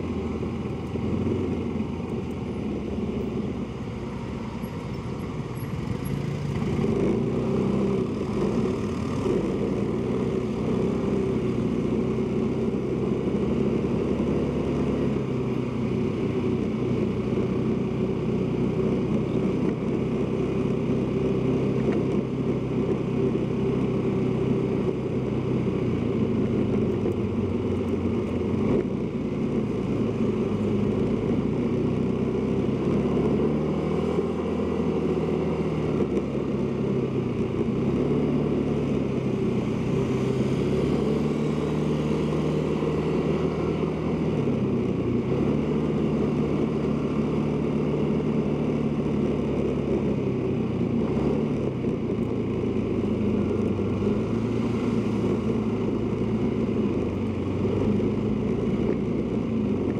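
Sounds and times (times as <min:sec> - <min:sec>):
road and wind noise: 0:00.0 - 0:59.9.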